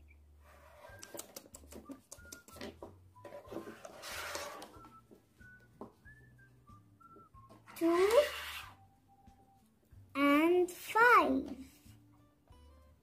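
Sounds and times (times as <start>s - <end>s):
plastic scraping slide: 3.3s - 4.8s, 7.7s - 8.8s.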